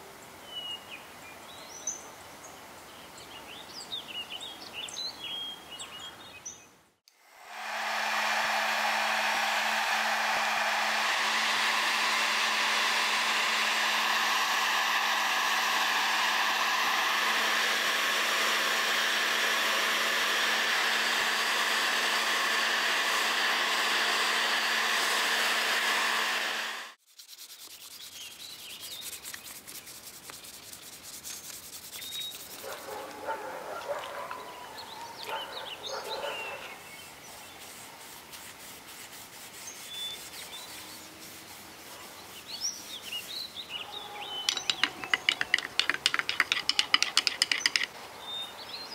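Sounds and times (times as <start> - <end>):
heat gun blowing air: 7.1 - 27.0
cloth rubbing wooden handle: 44.5 - 47.9.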